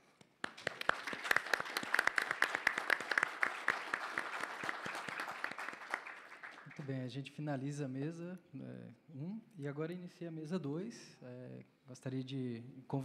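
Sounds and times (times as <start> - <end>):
audience applauding: 0.4 - 6.9.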